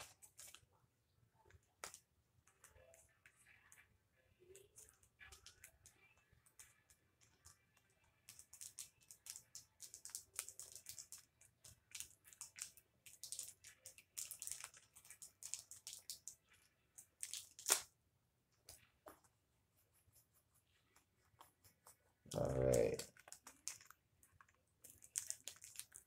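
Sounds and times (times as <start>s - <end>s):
plastic packet crinkling and tearing: 8.2s - 16.4s, 17.0s - 17.9s, 22.3s - 26.0s.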